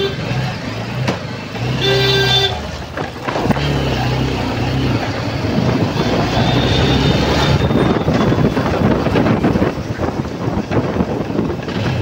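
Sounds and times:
motorbike engine hum: 0:00.0 - 0:12.0
vehicle horn: 0:01.6 - 0:02.7, 0:05.8 - 0:08.5
wind rushing over microphone: 0:04.9 - 0:12.0.

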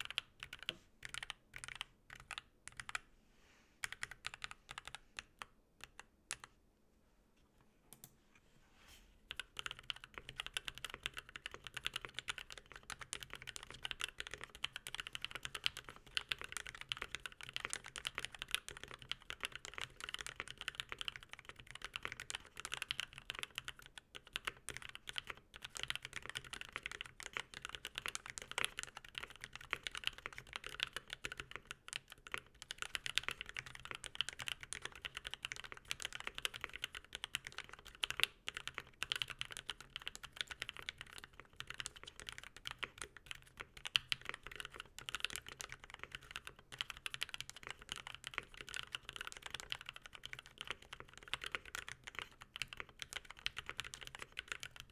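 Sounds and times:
mechanical keyboard typing: 0:00.0 - 0:03.0, 0:03.8 - 0:06.5, 0:09.3 - 0:54.9.

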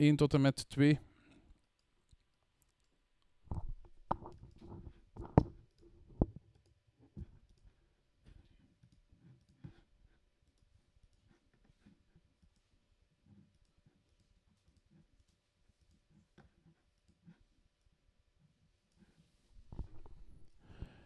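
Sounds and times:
computer mouse clicking: 0:01.6 - 0:07.8, 0:08.7 - 0:09.8, 0:10.4 - 0:17.9
mouse knocking on desk: 0:03.5 - 0:06.4.

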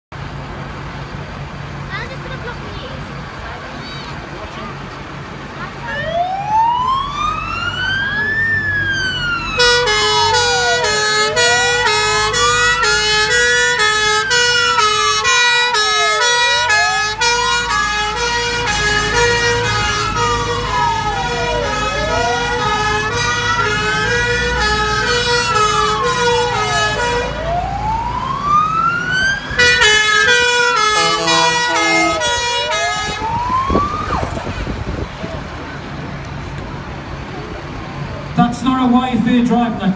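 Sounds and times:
truck engine rumbling: 0:00.1 - 0:39.9
fire engine siren wailing: 0:05.6 - 0:36.0
fast two-note siren: 0:06.0 - 0:34.5.

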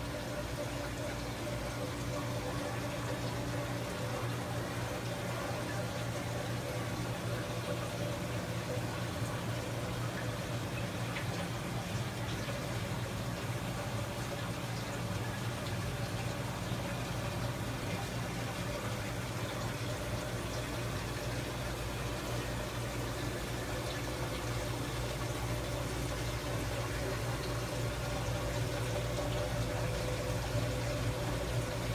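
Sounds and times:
constant low hum: 0:00.0 - 0:31.9
water flowing and trickling: 0:00.0 - 0:31.9.

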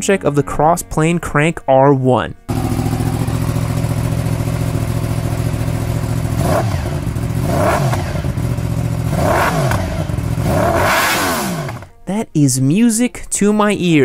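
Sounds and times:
motorcycle engine idling: 0:02.5 - 0:11.9
motorcycle throttle blips: 0:02.5 - 0:12.0.

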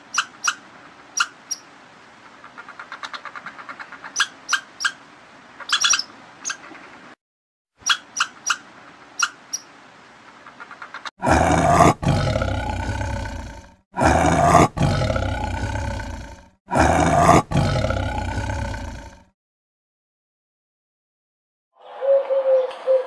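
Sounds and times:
big cat roaring: 0:11.2 - 0:19.3.

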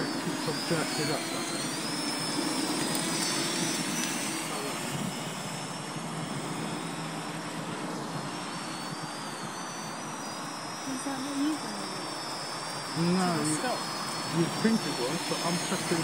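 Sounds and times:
drone propellers whirring: 0:00.0 - 0:16.0.

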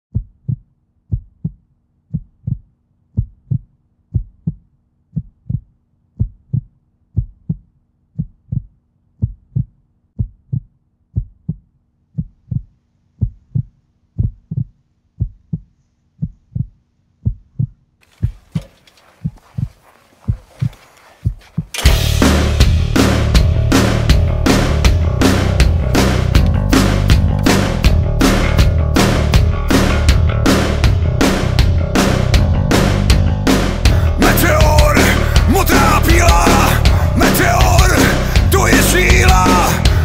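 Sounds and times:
heartbeat double thump: 0:00.1 - 0:28.0.

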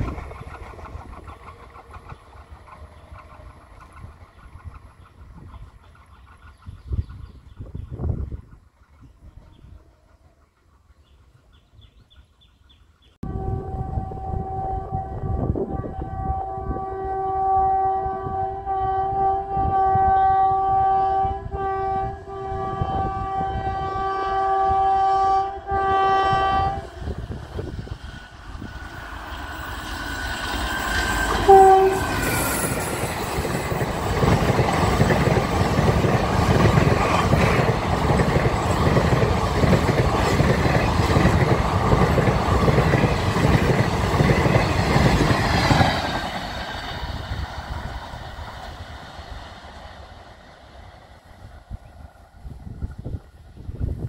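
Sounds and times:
train wheels clattering over rails: 0:00.0 - 0:09.4, 0:27.6 - 0:49.8
locomotive horn: 0:13.2 - 0:27.2, 0:31.2 - 0:32.8.

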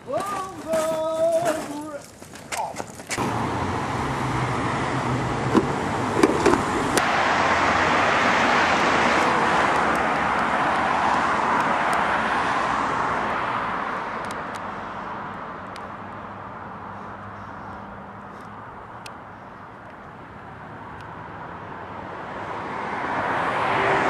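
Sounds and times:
car driving past: 0:03.2 - 0:15.3, 0:20.5 - 0:24.0.

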